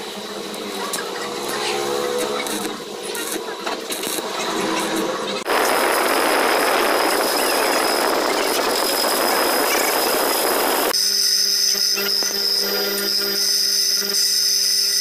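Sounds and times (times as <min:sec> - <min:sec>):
bench grinder whining: 0:00.0 - 0:15.0
metal lathe cutting: 0:03.8 - 0:15.0.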